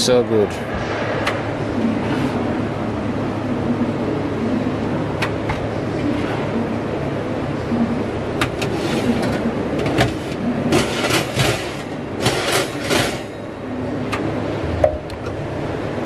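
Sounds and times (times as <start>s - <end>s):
wire oven shelves clinking: 8.4s - 13.4s.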